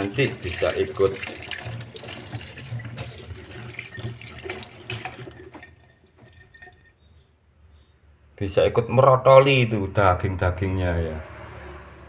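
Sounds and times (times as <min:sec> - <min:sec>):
tap water running into metal sink: 0:00.0 - 0:06.9.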